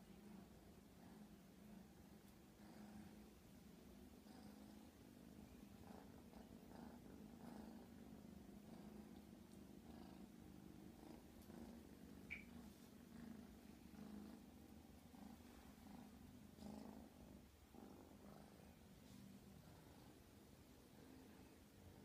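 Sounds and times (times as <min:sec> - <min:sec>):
kitten purring: 0:00.0 - 0:22.0
high chirp: 0:12.3 - 0:12.6.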